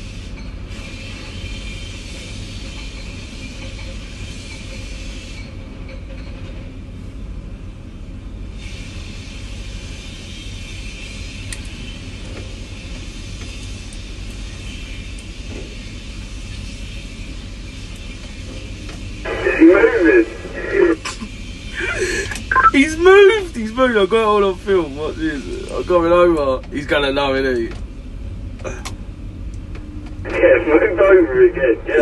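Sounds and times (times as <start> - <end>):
hiss: 0.0 - 5.6, 8.5 - 22.5
low background rumble: 19.2 - 23.8.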